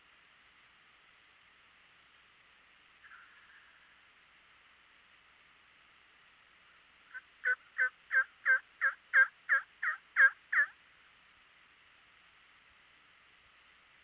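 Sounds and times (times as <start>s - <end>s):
faint steady hiss: 0.0s - 14.0s
turkey yelps: 7.1s - 10.8s.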